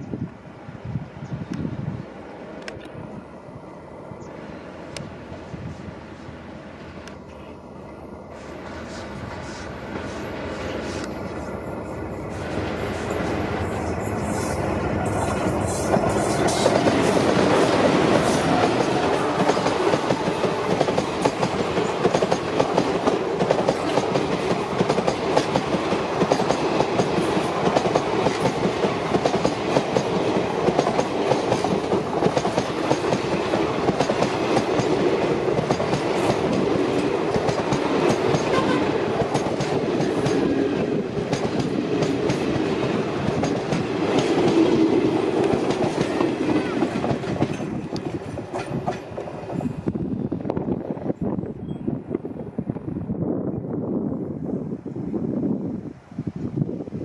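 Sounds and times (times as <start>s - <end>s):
diesel locomotives passing: 0.0s - 57.0s
wheels clacking on rails: 8.6s - 49.9s.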